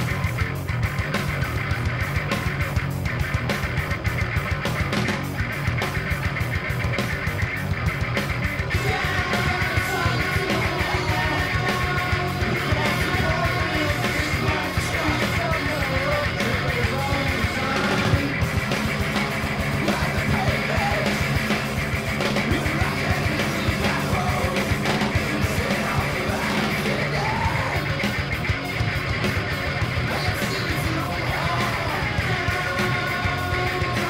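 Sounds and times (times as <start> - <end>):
noise rock band playing: 0.0 - 34.0
person yelling vocals: 8.7 - 18.2, 22.4 - 27.9.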